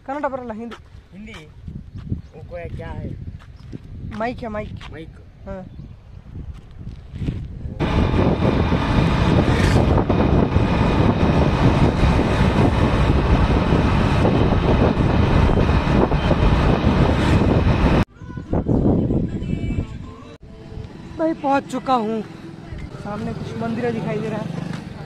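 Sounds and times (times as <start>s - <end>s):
wind buffeting microphone: 1.0s - 20.2s
vehicle engine and road noise: 6.4s - 18.1s, 20.5s - 25.0s.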